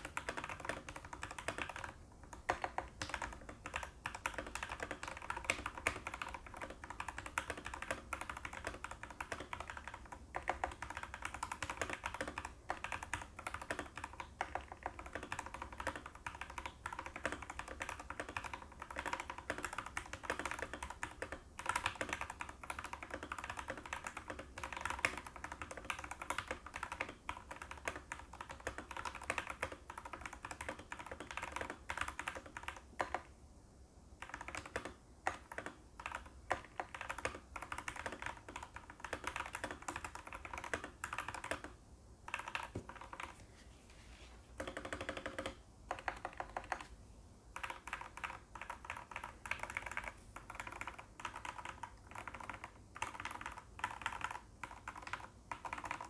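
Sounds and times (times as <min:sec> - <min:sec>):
mechanical keyboard keystroke clacks: 0:47.6 - 0:56.0.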